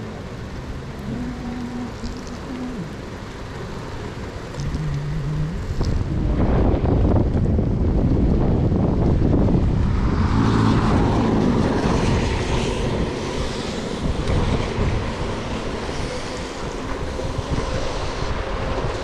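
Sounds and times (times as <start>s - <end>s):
wind buffeting microphone: 0.0s - 19.0s
tyre hiss on wet road: 10.5s - 19.0s.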